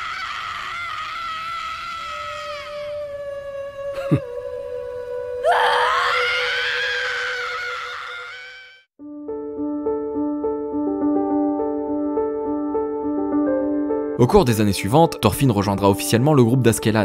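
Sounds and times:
boy screaming: 0.0 - 4.4, 5.4 - 8.8.

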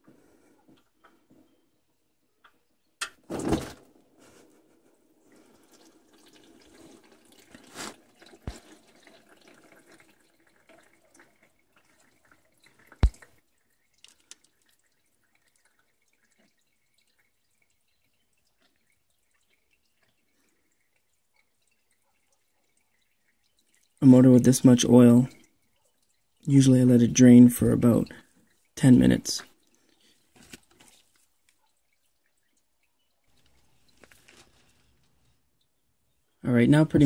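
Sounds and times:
oil pouring into pan: 5.2 - 28.8.

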